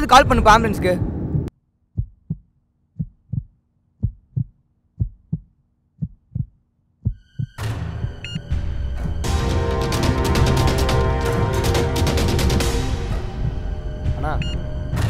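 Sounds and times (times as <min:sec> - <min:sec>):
heartbeat thumps: 0:01.0 - 0:08.4.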